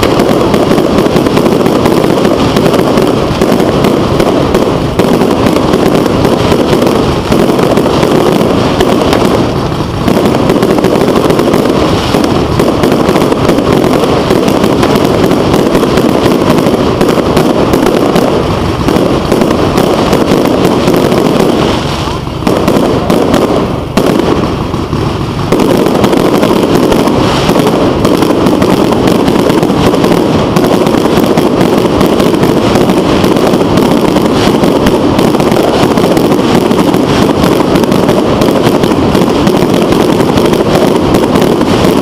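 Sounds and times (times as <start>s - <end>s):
fireworks bursting: 0.0s - 42.0s.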